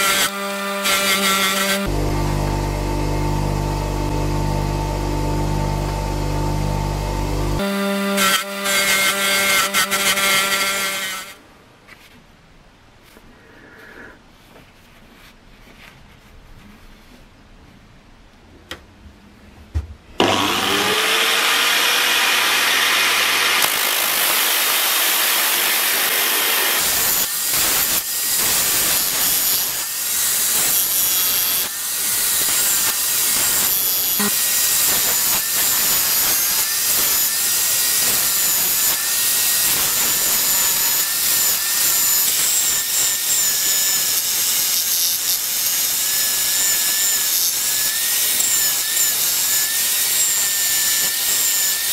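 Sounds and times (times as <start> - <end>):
sanding disc grinding metal: 24.8 - 51.9.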